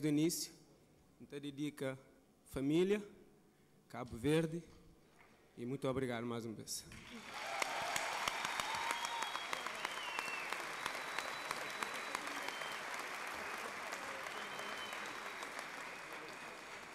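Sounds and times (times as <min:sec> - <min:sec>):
audience applauding: 0:07.0 - 0:16.9.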